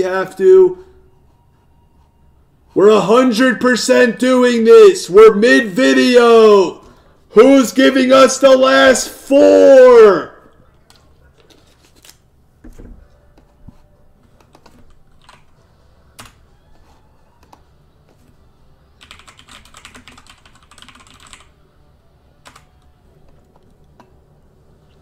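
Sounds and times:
computer keyboard typing: 14.4 - 15.5, 19.0 - 21.6, 22.4 - 23.7.

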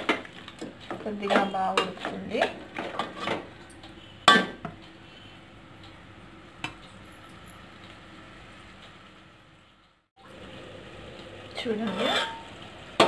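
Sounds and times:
chicken sizzling in a pot: 10.2 - 13.0.

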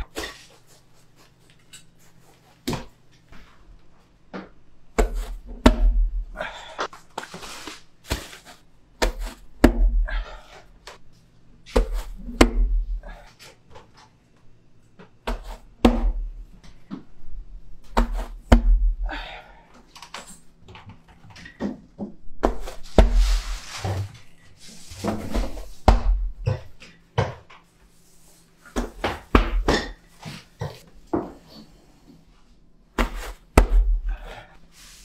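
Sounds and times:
dough knocks and slaps: 4.4 - 6.2, 8.0 - 10.2, 11.7 - 13.1, 15.2 - 16.4, 17.8 - 19.1, 21.6 - 23.5, 25.1 - 27.5, 28.7 - 30.0, 33.0 - 34.3
rustling scrape: 7.1 - 8.6, 22.6 - 25.8.

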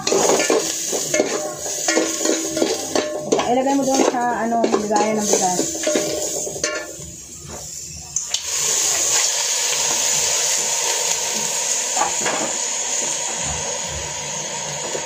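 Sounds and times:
meat sizzling in hot oil: 0.0 - 15.0.

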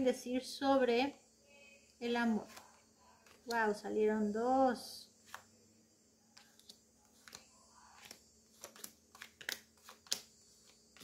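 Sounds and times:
cards dealt onto wooden desk: 5.2 - 5.5, 6.4 - 11.0.

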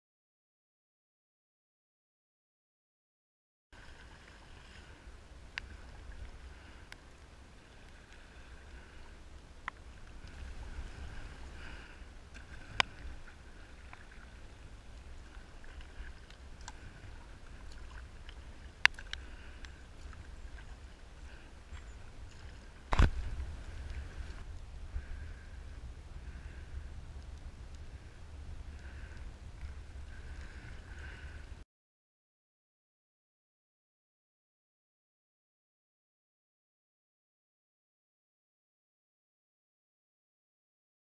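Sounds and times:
paddle strokes in water: 3.8 - 31.6
wind rumble on microphone: 3.8 - 31.6.

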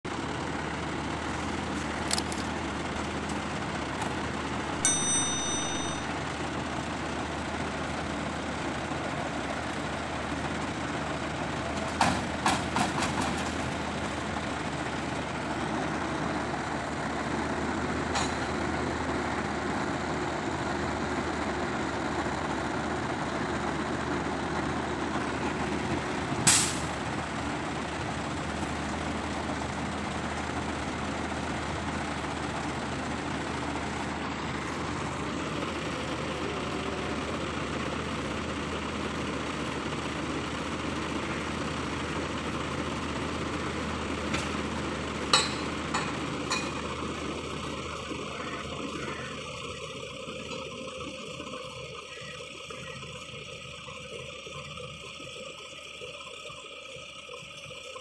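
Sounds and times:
diesel truck engine idling: 0.1 - 58.0
short high beep: 4.8 - 6.1.

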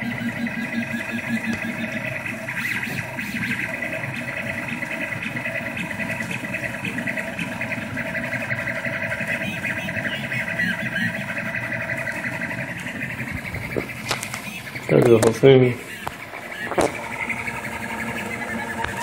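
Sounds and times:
cooling fan hum: 0.0 - 19.0
stepper motors whirring and chirping: 0.0 - 19.0.

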